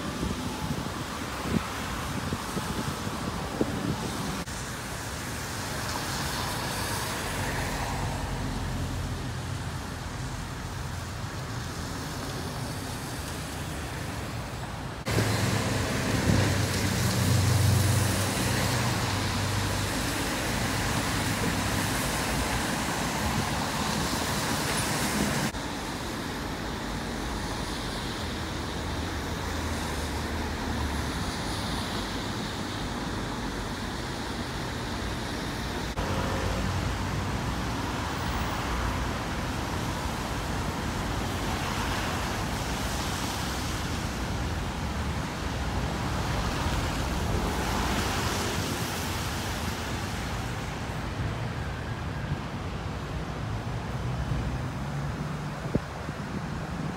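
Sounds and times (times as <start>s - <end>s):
cars passing: 0.0s - 56.9s
heavy vehicle rumble: 7.4s - 22.5s.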